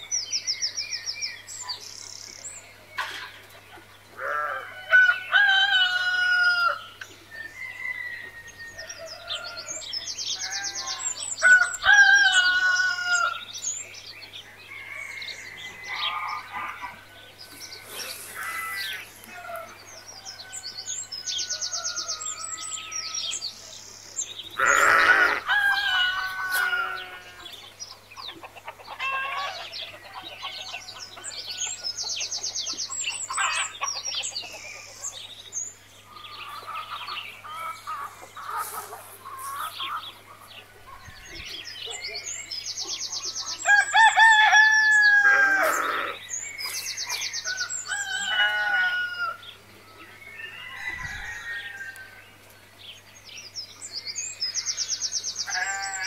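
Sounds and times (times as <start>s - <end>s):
rooster crowing: 4.3s - 6.8s, 7.4s - 9.9s, 24.6s - 27.5s, 43.6s - 46.2s, 47.5s - 49.4s, 50.4s - 52.2s
small birds chirping: 8.8s - 56.0s
chickens clucking: 25.2s - 35.3s, 36.2s - 43.3s.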